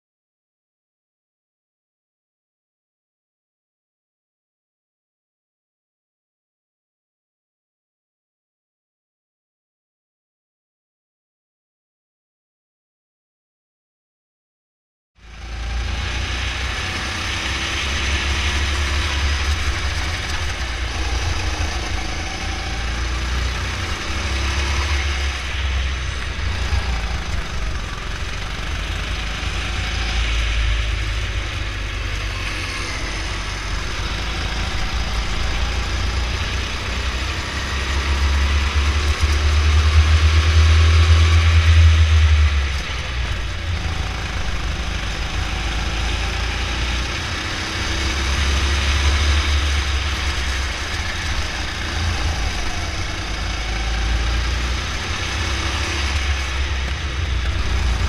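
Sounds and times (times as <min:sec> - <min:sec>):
go-kart engine running: 0:15.2 - 0:58.0.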